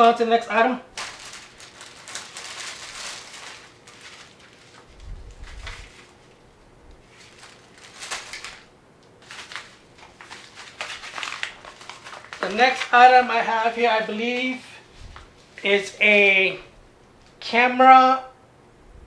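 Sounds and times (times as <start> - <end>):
packaging rustling: 0.9 - 15.7.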